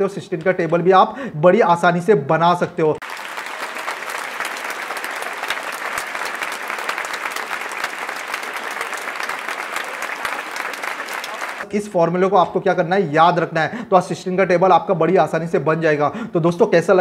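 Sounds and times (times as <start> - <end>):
group of people clapping: 3.0 - 11.7.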